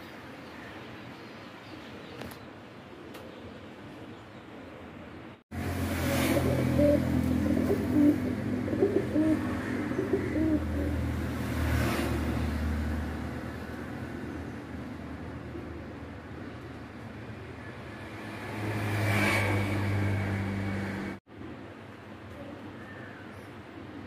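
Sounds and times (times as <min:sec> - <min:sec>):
pigeons cooing: 0:06.1 - 0:11.2.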